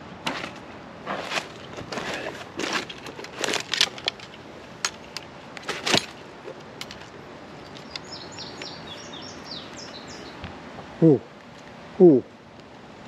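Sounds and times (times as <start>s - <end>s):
landing net and fish scale handling: 0.2s - 8.1s.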